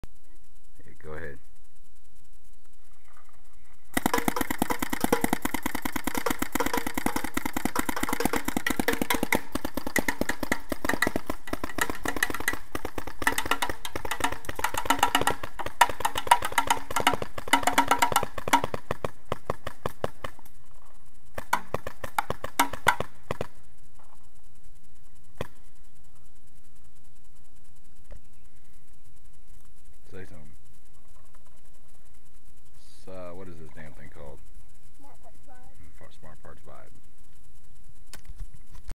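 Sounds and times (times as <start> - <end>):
paintball gun firing: 3.9 - 20.4, 21.3 - 23.6.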